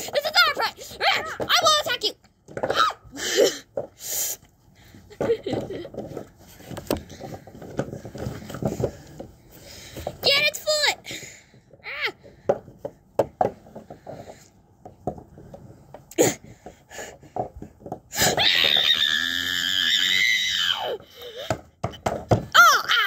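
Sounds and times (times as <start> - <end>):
plastic figurines tapping on wood: 12.2 - 15.6.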